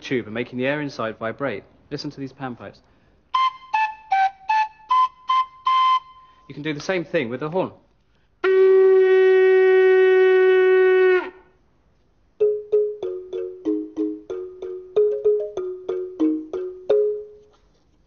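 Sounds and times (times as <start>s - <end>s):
horn blown in steady note: 8.4s - 11.5s
balafon notes: 12.4s - 17.5s.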